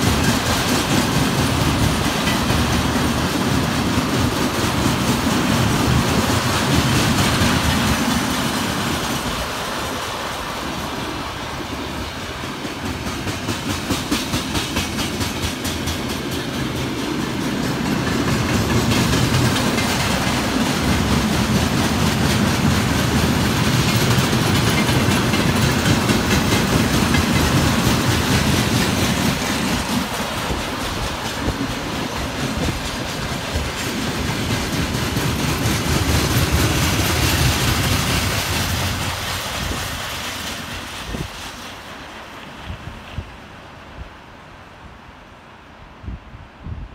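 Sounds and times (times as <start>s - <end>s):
wheels clacking over rail joints: 0.0s - 43.0s
freight train rumbling past: 0.0s - 46.9s.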